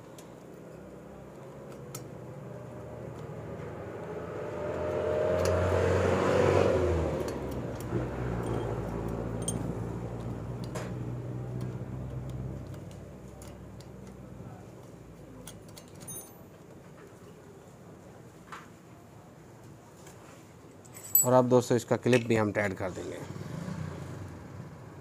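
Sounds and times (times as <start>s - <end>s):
passing vehicle engine hum: 2.2s - 13.1s, 23.1s - 25.0s
metal parts clicking: 7.2s - 9.8s, 15.4s - 16.4s.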